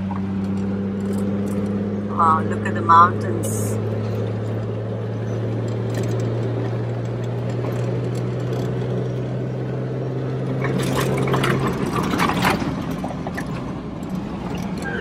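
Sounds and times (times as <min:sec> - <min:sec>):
vehicle engine drone: 0:00.0 - 0:15.0
clicks and rattles: 0:10.6 - 0:14.9.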